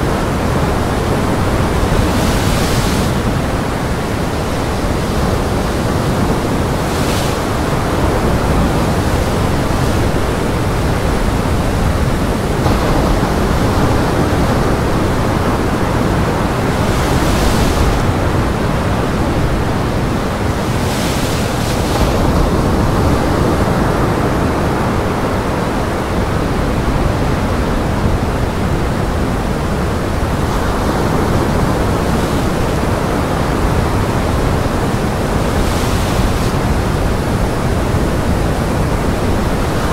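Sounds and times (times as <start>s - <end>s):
strong wind: 0.0s - 39.9s
waves breaking on rocks: 0.1s - 24.4s.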